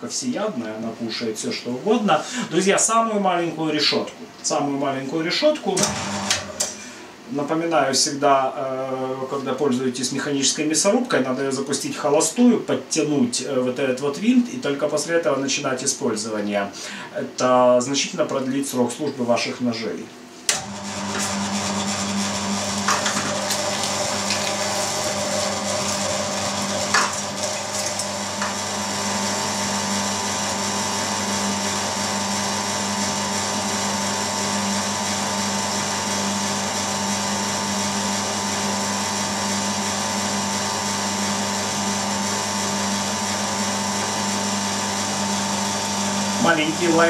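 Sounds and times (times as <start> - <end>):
meat grinder motor whining: 5.8 - 6.8, 20.5 - 47.0.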